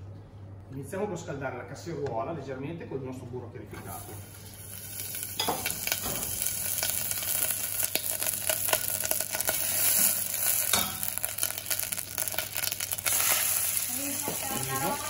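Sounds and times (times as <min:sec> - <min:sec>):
butter sizzling and popping: 0:04.0 - 0:15.0.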